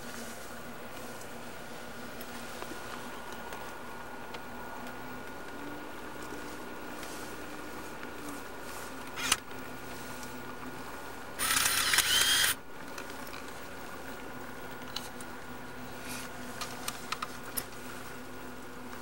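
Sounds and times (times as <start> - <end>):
faint steady hum: 0.0 - 19.0
camcorder handling noise: 9.1 - 9.5, 11.4 - 13.1.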